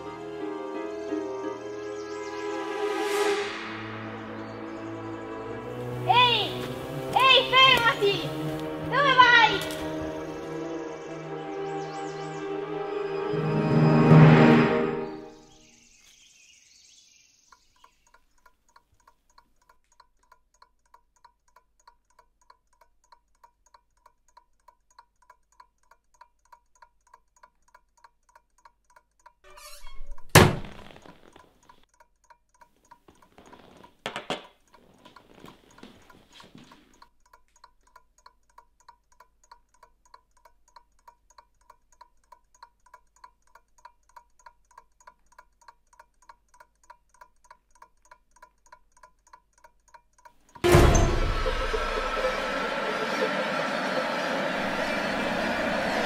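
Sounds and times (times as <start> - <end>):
clock ticking: 6.1 - 10.6, 17.5 - 29.5, 31.3 - 54.2
sharp knock: 50.6 - 55.6.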